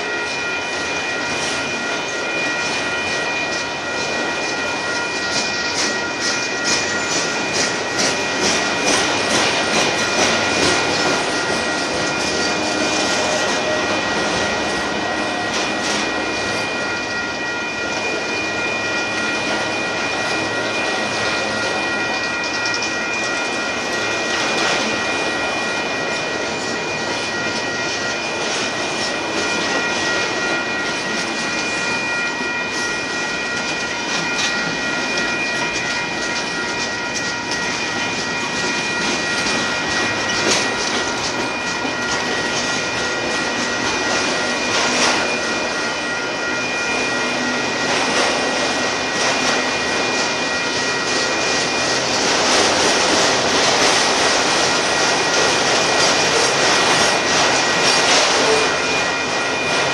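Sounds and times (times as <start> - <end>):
freight train rolling past: 0.0 - 59.9
steady high-pitched tones: 0.0 - 59.9.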